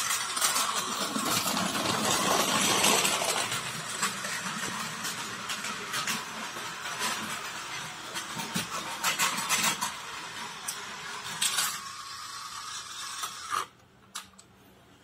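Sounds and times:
wheels clattering over track: 0.0 - 11.9
toy train motor whirring: 0.0 - 14.3.

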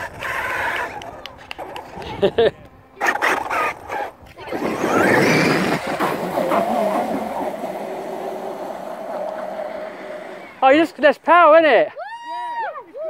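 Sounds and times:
electric motor whining: 3.1 - 11.0.

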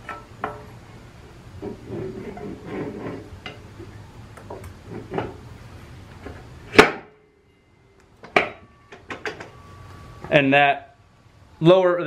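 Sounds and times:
loud metal clunk: 6.7 - 7.2, 8.2 - 9.7.

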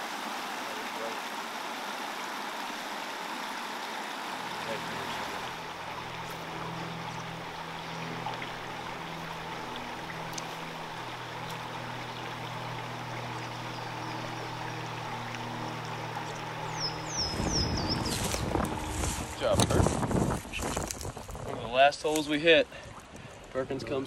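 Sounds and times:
stream rushing over rocks: 0.0 - 23.2
low steady hum: 4.3 - 21.0.

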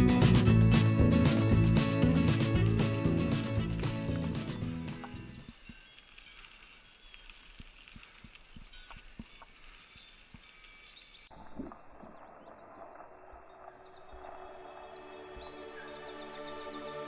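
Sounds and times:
small birds chirping: 3.8 - 17.0
bike tyres rolling on gravel: 4.9 - 16.1.

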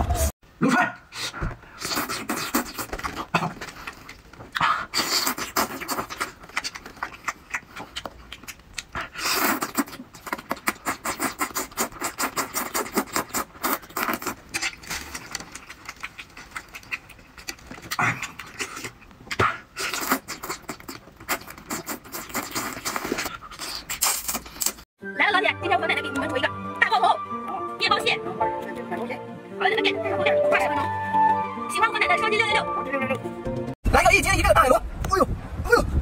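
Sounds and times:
mouth smacks and sucking: 1.2 - 24.8
wet slurping and chewing: 1.2 - 24.9.

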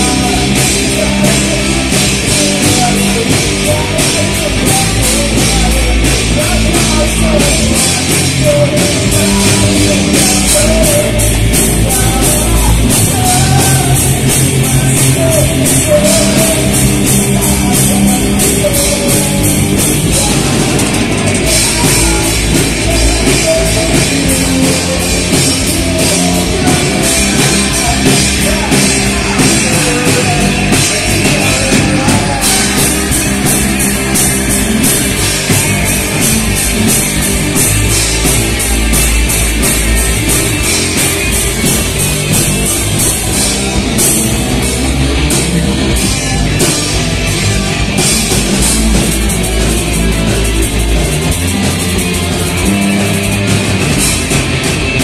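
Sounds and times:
bass guitar: 0.0 - 55.0
distorted electric guitar: 0.0 - 55.0
drum kit fast beat: 0.0 - 55.0.

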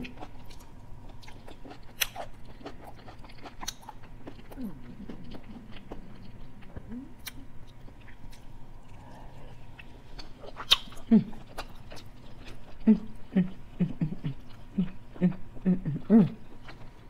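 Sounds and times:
close-miked chewing: 0.0 - 17.0
wet mouth clicks and smacks: 10.6 - 11.0.

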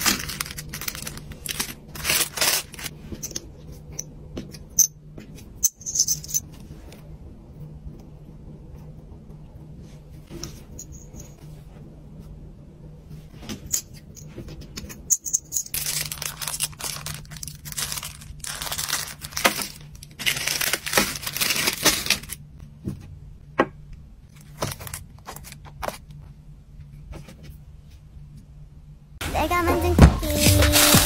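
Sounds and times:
plastic wrapping crinkling: 0.0 - 2.9, 15.7 - 22.5
low steady hum: 0.0 - 31.0.

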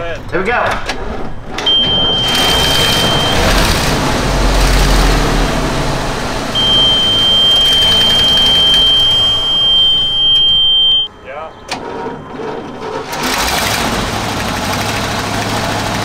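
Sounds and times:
bus engine running rough: 1.4 - 11.1, 11.8 - 16.0
high-pitched warning buzzer: 1.7 - 3.8, 6.6 - 11.1.

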